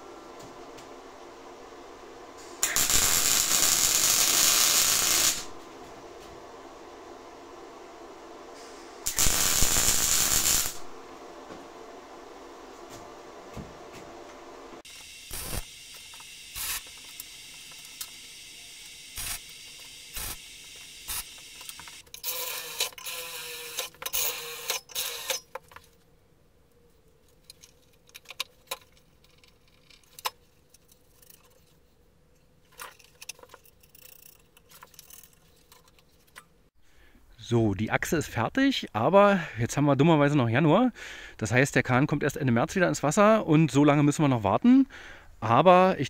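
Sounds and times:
welding arc crackling hiss: 0.0 - 25.4
loud arc cracks: 2.4 - 5.6, 8.6 - 11.0, 14.9 - 18.2, 18.8 - 22.0
cordless drill driving screws: 21.1 - 25.4
metal parts clinking: 32.7 - 36.5.

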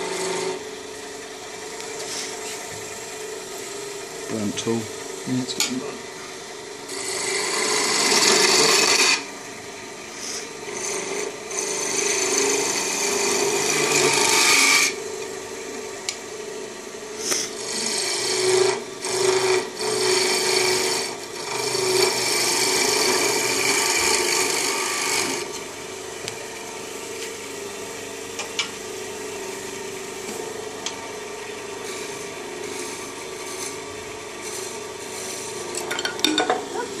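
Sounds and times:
turning tool scraping wood: 0.0 - 0.6, 1.8 - 9.3, 10.1 - 15.0, 17.2 - 25.7, 31.4 - 35.9
wood lathe humming: 0.0 - 37.0.

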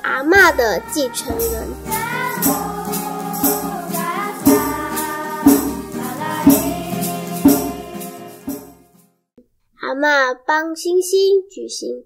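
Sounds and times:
person singing folk song: 0.0 - 8.8
jingling percussion: 0.3 - 9.0.

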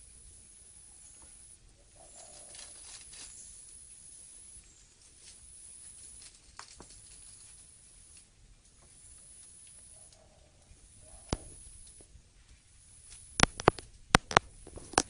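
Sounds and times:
rustling leaves and undergrowth: 0.0 - 15.0
steady hiss: 0.0 - 15.0
sharp clicks: 13.1 - 15.0.

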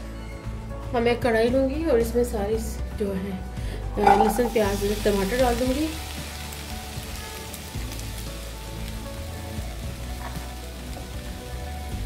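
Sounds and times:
quiet background music: 0.0 - 12.0
vegetables sizzling in a pan: 4.0 - 12.0.

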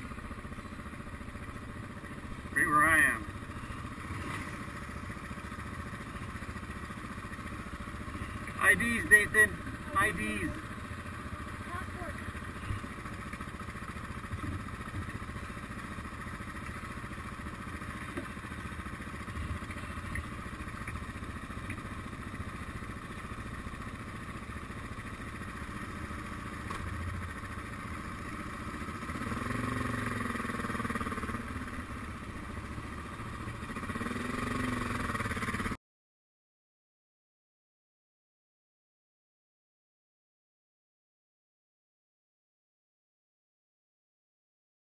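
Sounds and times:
motorcycle engine running: 0.0 - 35.8.

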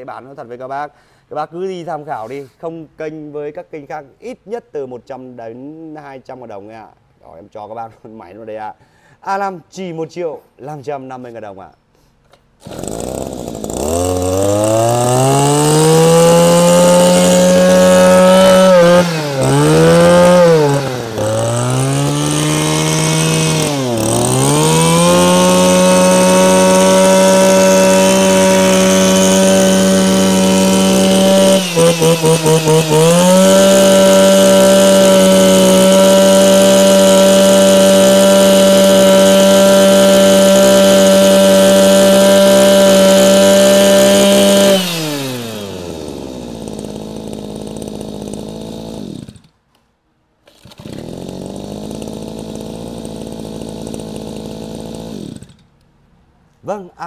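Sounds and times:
brush cutter engine revving: 12.6 - 49.6, 50.4 - 55.8.

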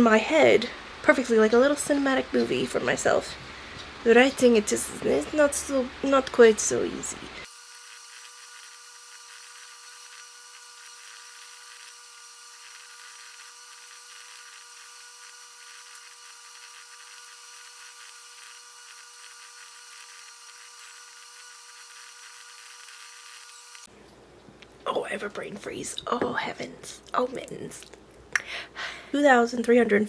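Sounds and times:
high electrical whine: 4.0 - 23.9.

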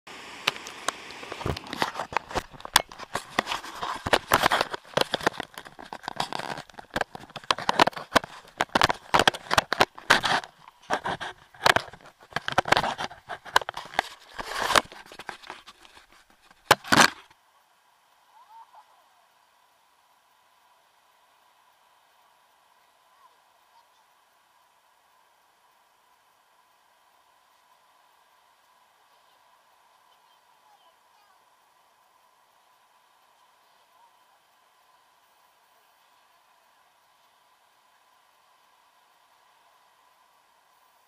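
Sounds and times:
camera handling noise: 0.5 - 17.3.

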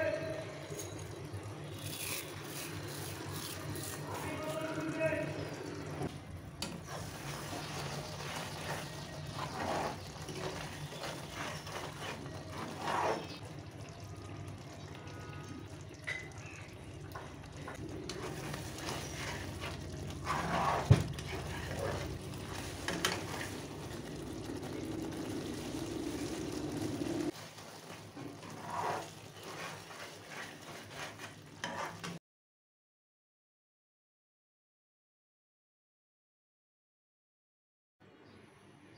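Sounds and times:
curry simmering in pan: 5.4 - 32.2
plastic spatula scraping pan: 6.8 - 13.4, 17.8 - 23.7, 25.0 - 32.2.

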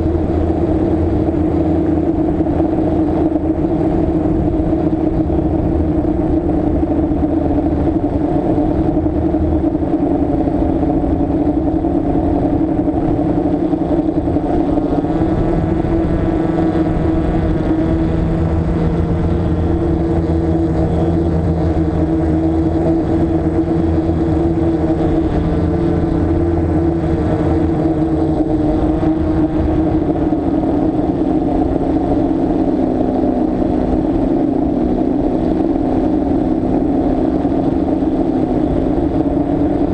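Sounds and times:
drone motors and propellers humming: 0.0 - 39.9.

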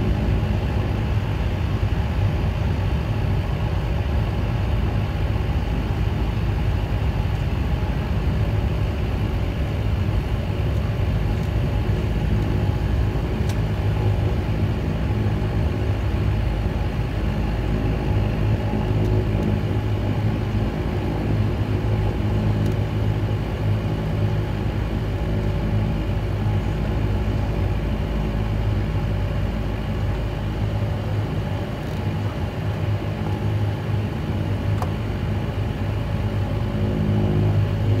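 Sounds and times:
propeller aircraft engine droning: 0.0 - 38.0.

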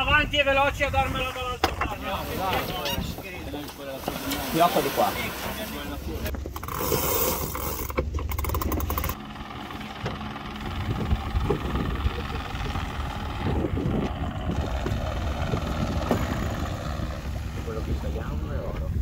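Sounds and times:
wind noise on microphone: 0.0 - 3.6, 10.5 - 19.0
helicopter rotor chopping: 4.4 - 19.0.

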